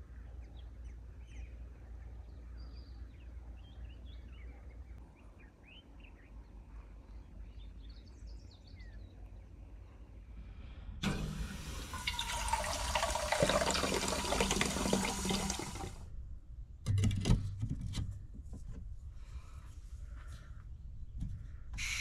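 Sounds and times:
tap water running into cup: 11.0s - 16.0s.

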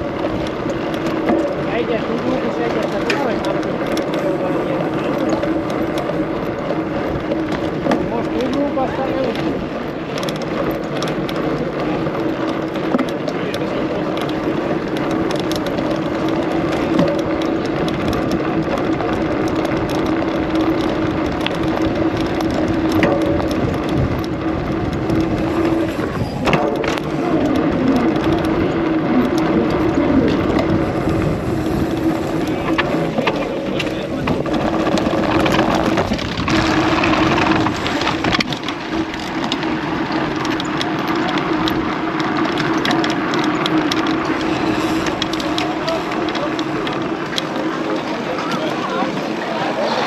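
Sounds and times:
bike tyre on cobblestones: 0.0s - 50.0s
constant hum: 0.0s - 50.0s.

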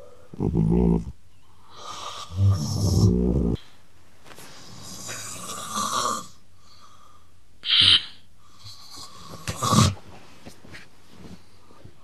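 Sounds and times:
loud snoring: 0.4s - 1.1s, 1.8s - 3.6s, 9.2s - 10.0s
loud snorts: 9.4s - 10.0s.

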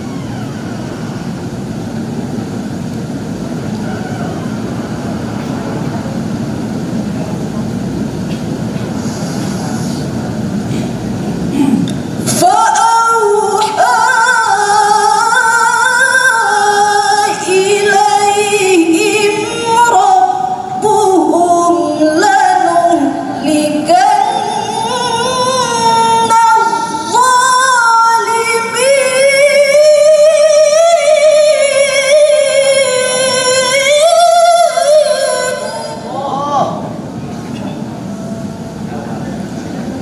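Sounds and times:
woman reciting melodically: 11.5s - 36.9s.

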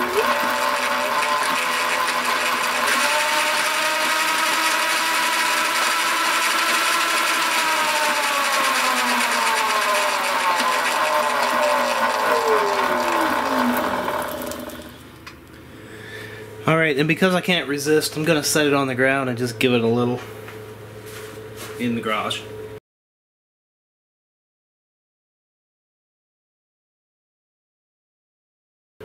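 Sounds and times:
drive chain running over sprocket: 0.0s - 14.9s
electric motor whine: 0.0s - 15.2s.

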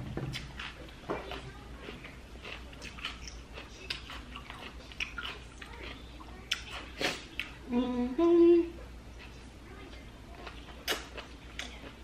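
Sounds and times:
prawns peeled and chewed: 0.3s - 7.6s.

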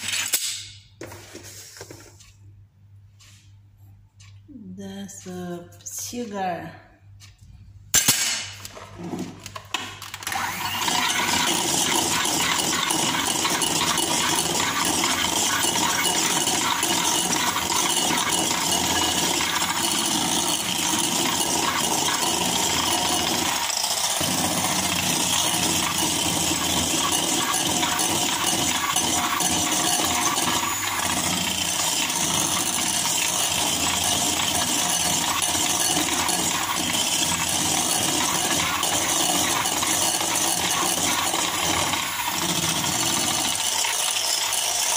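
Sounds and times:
electric hand mixer whirring: 8.7s - 44.9s
beaters rattling in ceramic bowl: 11.0s - 44.8s.

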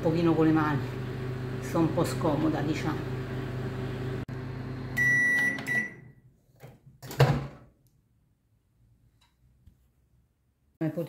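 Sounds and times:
microwave oven humming: 0.0s - 6.2s
microwave beeps: 4.8s - 6.2s.

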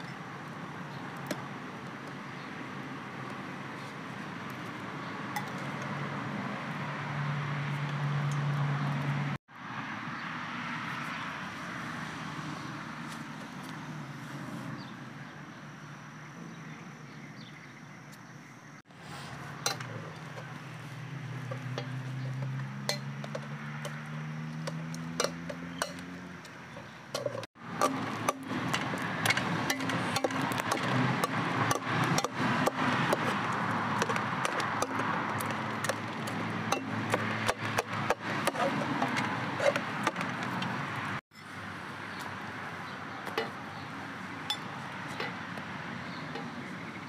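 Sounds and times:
metal spoon clinking against pot: 21.5s - 24.0s.

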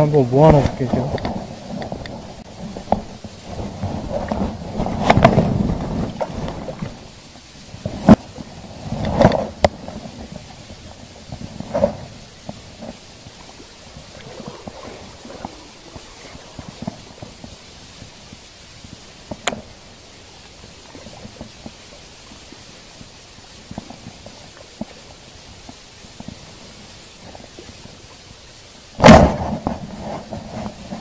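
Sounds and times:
loud thump: 29.0s - 29.7s.

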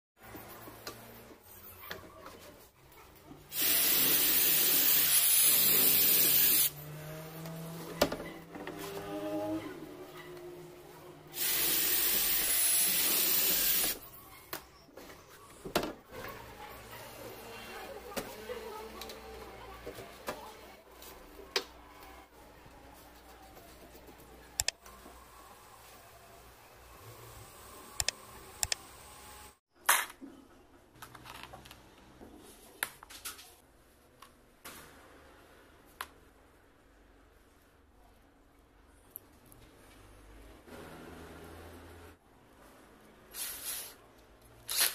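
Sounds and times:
power drill boring through wood: 3.5s - 6.8s, 11.4s - 14.0s.

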